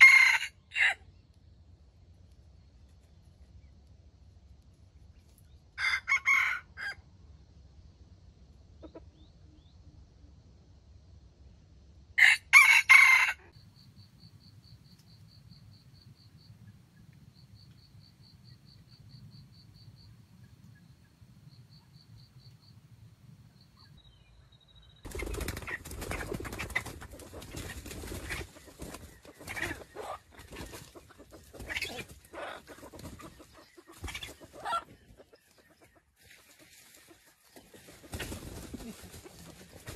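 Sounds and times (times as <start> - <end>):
rooster crowing: 0.0 - 1.0, 5.8 - 7.0, 12.2 - 13.6
wings flapping and rustling: 25.1 - 35.6, 36.2 - 39.9.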